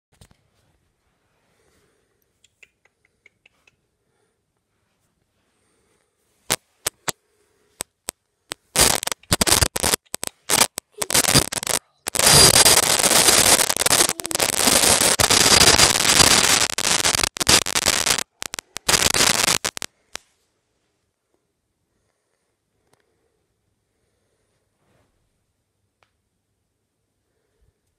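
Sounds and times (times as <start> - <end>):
microphone rubbing against cat fur: 8.6 - 19.9.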